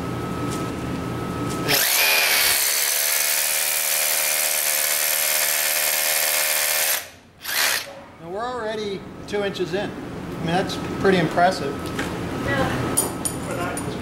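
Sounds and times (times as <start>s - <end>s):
power drill grinding into rock: 1.7s - 7.9s.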